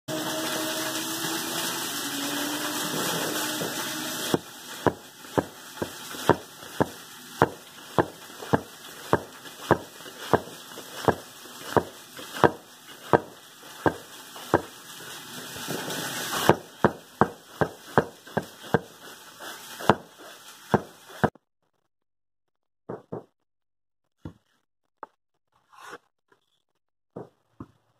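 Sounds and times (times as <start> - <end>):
axe chopping on cutting board: 11.7 - 13.3, 16.4 - 18.9, 19.8 - 20.1.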